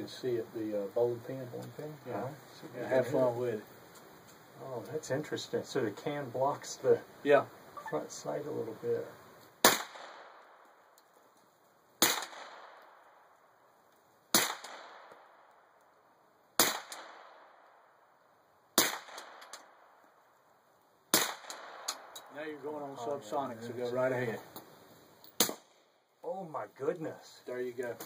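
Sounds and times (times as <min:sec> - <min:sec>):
suppressed pistol shots: 0:09.6 - 0:10.5, 0:12.0 - 0:13.0, 0:14.3 - 0:15.3, 0:16.6 - 0:17.5, 0:18.8 - 0:19.7, 0:21.1 - 0:22.2, 0:25.4 - 0:25.8.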